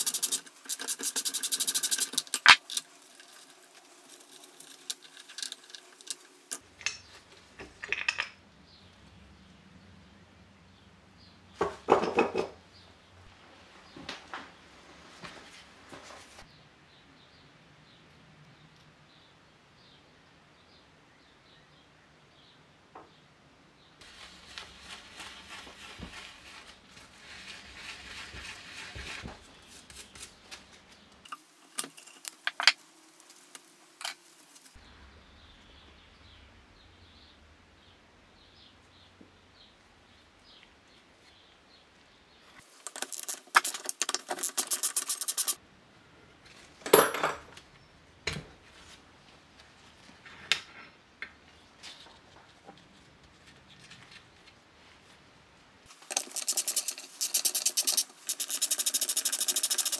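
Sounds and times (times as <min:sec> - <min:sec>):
fast run of clicks: 0:00.0 - 0:02.9, 0:42.9 - 0:45.6, 0:56.0 - 0:59.9
metal clinks and knocks: 0:06.8 - 0:08.4.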